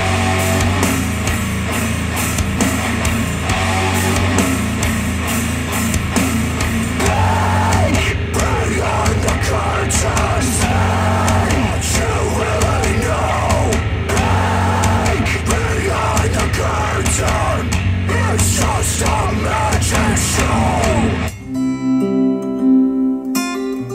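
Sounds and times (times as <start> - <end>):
rock music with guitar and drums: 0.0 - 23.9.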